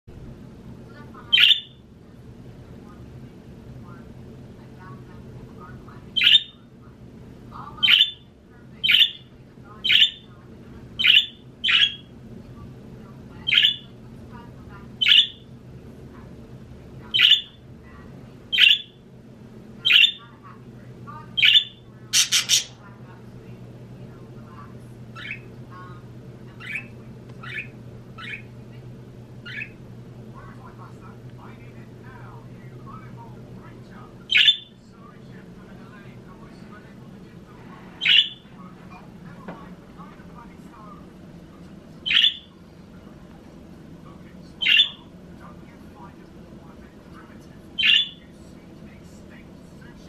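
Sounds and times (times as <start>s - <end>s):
budgerigar chirping: 1.3s - 1.8s, 6.2s - 6.6s, 7.8s - 8.2s, 8.8s - 10.3s, 11.0s - 12.1s, 13.5s - 13.9s, 15.0s - 15.4s, 17.2s - 17.6s, 18.5s - 19.0s, 21.4s - 22.8s, 34.3s - 34.7s, 38.0s - 38.4s, 42.0s - 42.5s, 44.6s - 45.0s, 47.8s - 48.2s
budgerigar squawking: 21.4s - 22.8s, 38.0s - 38.4s, 42.0s - 42.5s, 44.6s - 45.0s, 47.8s - 48.2s.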